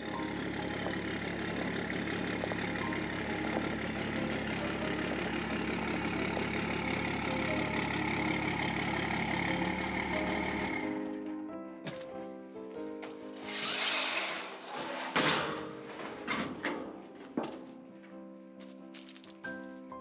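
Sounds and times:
pickup truck engine idling: 0:00.0 - 0:11.2.

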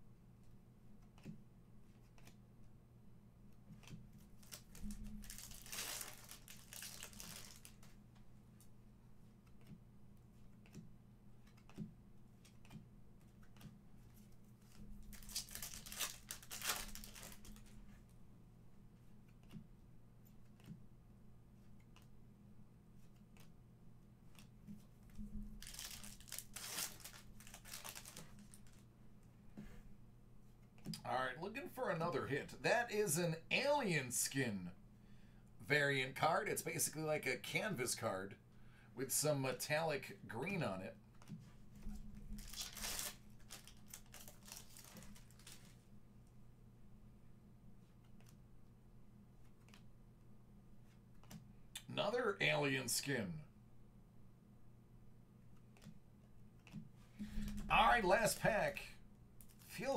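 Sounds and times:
cards rustling: 0:03.7 - 0:08.2, 0:11.4 - 0:18.1, 0:24.2 - 0:28.9, 0:42.3 - 0:45.8
foil wrapper crinkling and tearing: 0:04.4 - 0:07.8, 0:15.1 - 0:17.7, 0:25.6 - 0:28.8, 0:42.4 - 0:45.8
cards ticking: 0:09.4 - 0:17.8, 0:25.6 - 0:28.8.

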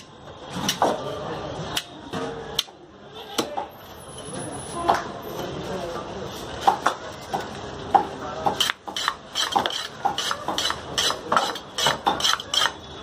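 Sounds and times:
knife chopping on wooden block: 0:06.6 - 0:12.8.

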